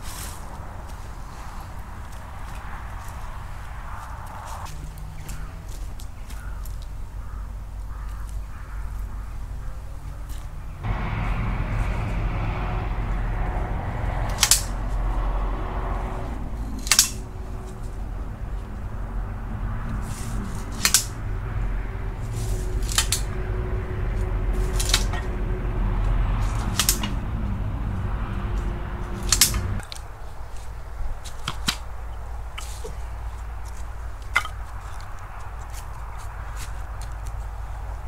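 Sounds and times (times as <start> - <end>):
low rumble: 10.8 - 29.8.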